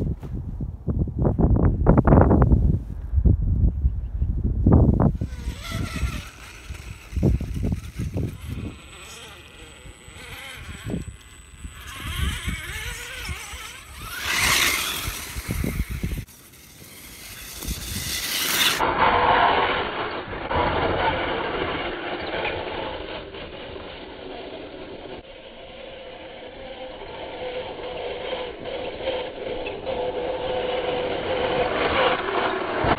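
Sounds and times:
low rumbles: 0:00.0 - 0:25.2
electric motor whining: 0:04.9 - 0:32.9.

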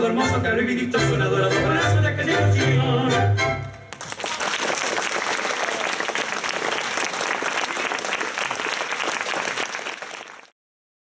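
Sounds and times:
audience applauding: 0:03.8 - 0:10.6.

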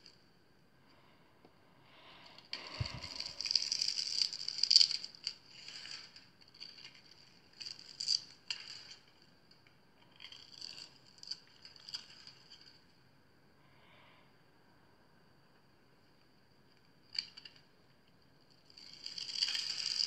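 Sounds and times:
soap cubes crackling: 0:02.5 - 0:12.8, 0:18.6 - 0:20.0.

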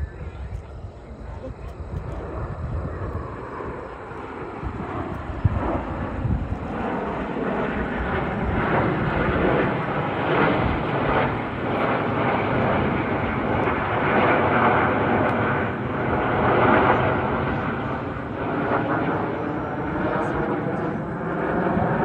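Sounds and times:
jets flying overhead: 0:00.0 - 0:22.0.

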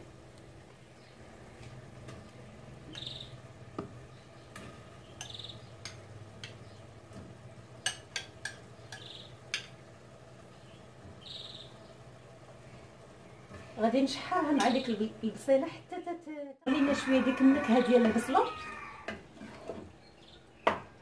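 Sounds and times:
spoon clicking against pot: 0:07.8 - 0:09.8.

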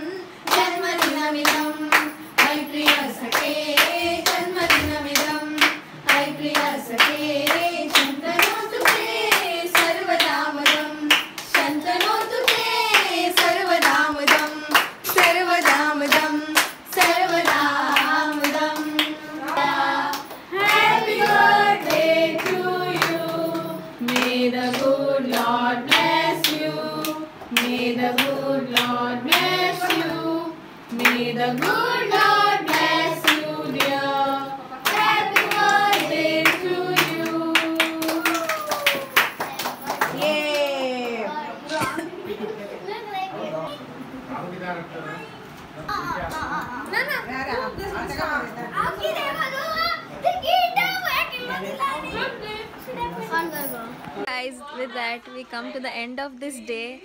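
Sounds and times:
group singing: 0:00.0 - 0:38.6
people clapping in time: 0:00.5 - 0:30.1, 0:31.0 - 0:34.2, 0:34.8 - 0:41.1.

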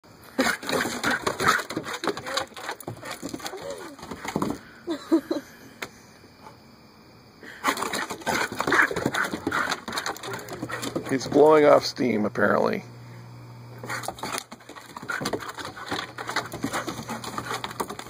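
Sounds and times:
dog grunting: 0:00.4 - 0:04.1, 0:07.6 - 0:11.2
dog nails clicking on wooden boards: 0:00.4 - 0:04.6, 0:07.7 - 0:11.5, 0:13.8 - 0:18.0.

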